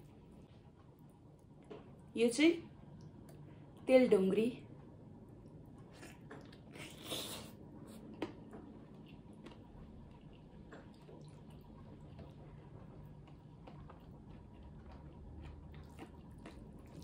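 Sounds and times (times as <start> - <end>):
chewing: 5.4 - 17.0
biting crisp food: 5.8 - 17.0.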